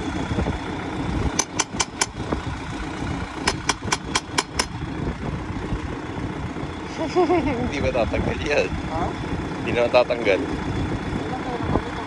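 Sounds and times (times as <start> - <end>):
tractor engine idling: 0.0 - 12.0
ratchet wrench clicking: 1.4 - 2.2, 3.4 - 4.8.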